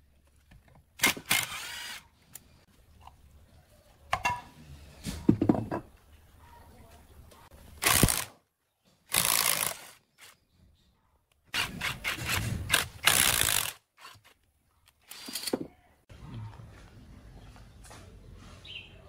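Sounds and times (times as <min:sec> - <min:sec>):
impact wrench bursts: 0:07.8 - 0:08.3, 0:09.1 - 0:10.3, 0:11.5 - 0:14.2.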